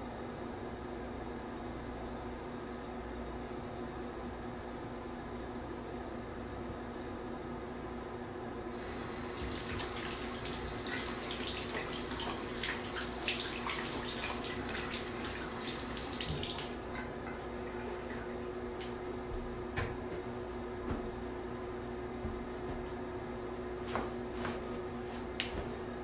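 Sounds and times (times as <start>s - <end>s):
exhaust fan humming: 8.5s - 26.0s
water running hard: 8.7s - 18.4s.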